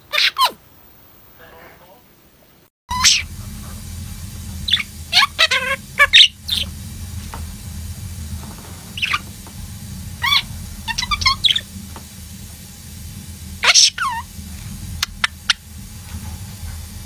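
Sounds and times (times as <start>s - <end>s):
low hum: 2.9s - 17.0s
budgerigars chirping: 6.0s - 6.7s.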